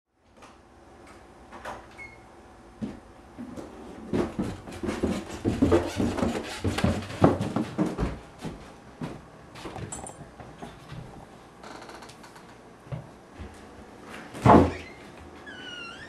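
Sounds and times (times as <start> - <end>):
footsteps on wooden stairs: 2.8 - 11.9.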